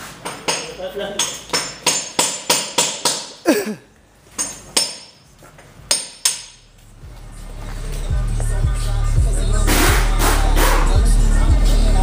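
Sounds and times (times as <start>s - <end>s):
car stereo bass: 6.9s - 12.0s.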